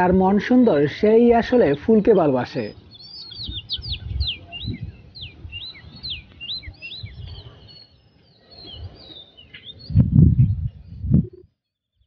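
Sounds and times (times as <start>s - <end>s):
birds chirping: 0.0s - 12.0s
low rumbles on microphone: 3.4s - 7.7s, 8.5s - 11.6s.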